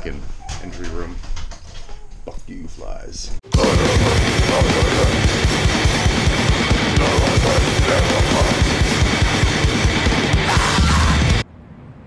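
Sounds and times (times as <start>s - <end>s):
fast rock music: 3.5s - 11.4s
rapid kick drum beats: 3.5s - 11.4s.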